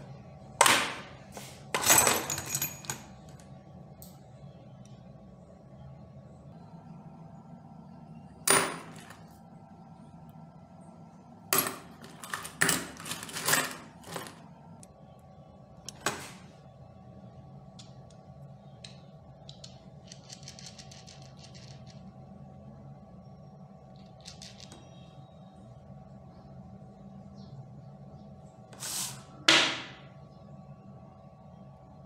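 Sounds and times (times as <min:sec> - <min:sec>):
faint steady hum: 0:00.0 - 0:32.0
bolts and nuts clinking in a box: 0:01.7 - 0:03.5, 0:08.5 - 0:09.2, 0:11.6 - 0:14.5.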